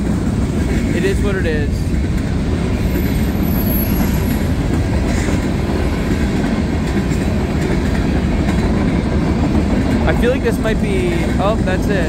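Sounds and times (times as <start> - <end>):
freight train wheels rumbling on rail: 0.0 - 12.0.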